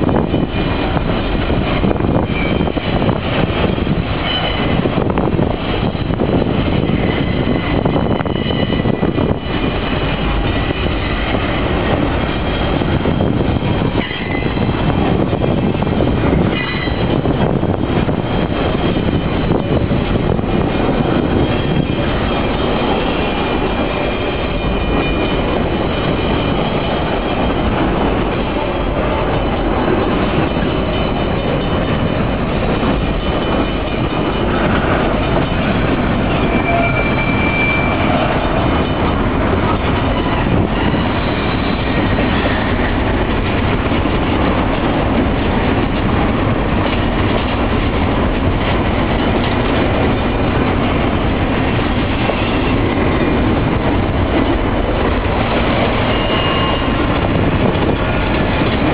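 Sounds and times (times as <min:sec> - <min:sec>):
train wheels rumbling on rail: 0:00.0 - 0:58.9
faint high wheel squeal: 0:36.3 - 0:38.4, 0:55.9 - 0:57.1.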